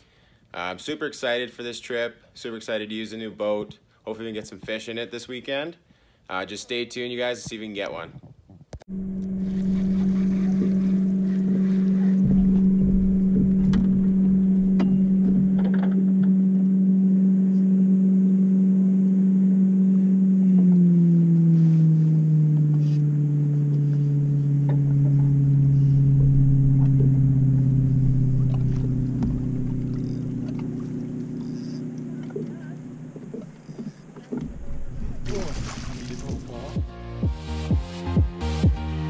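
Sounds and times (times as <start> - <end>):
boat motor humming: 8.9 - 39.0
faint clicks and knocks: 28.5 - 34.7.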